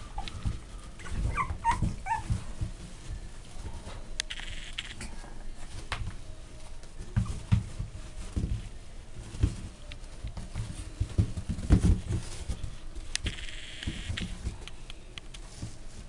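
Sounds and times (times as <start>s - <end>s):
puppies thumping and scrabbling: 0.0s - 4.1s, 5.5s - 13.1s.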